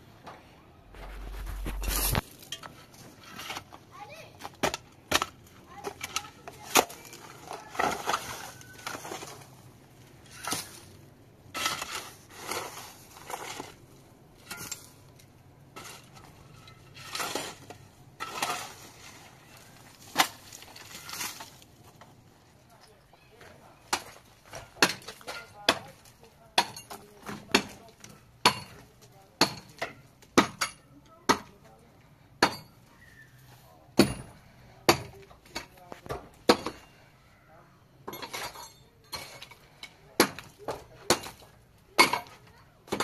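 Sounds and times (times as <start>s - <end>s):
shovels scraping stony soil: 0.9s - 22.0s.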